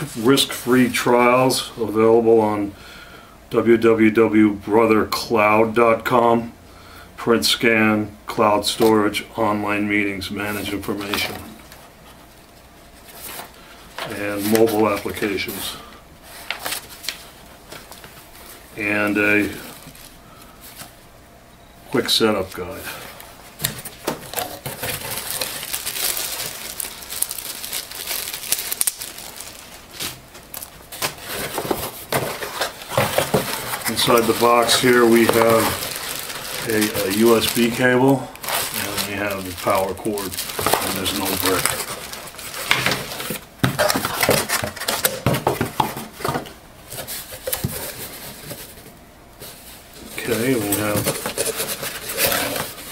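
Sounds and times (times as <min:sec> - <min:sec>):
plastic bag crinkling: 0:22.7 - 0:45.9, 0:49.4 - 0:52.9
cardboard box being opened: 0:30.6 - 0:37.8.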